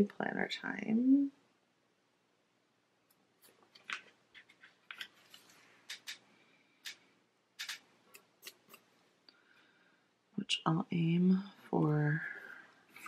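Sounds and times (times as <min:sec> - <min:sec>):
sticker sheet clicks and crackles: 0:07.6 - 0:08.8.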